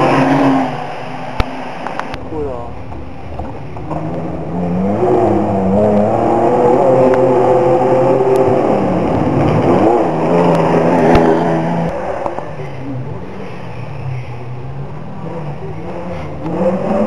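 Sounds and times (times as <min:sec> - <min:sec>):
rally car engine passing: 0:00.0 - 0:17.0.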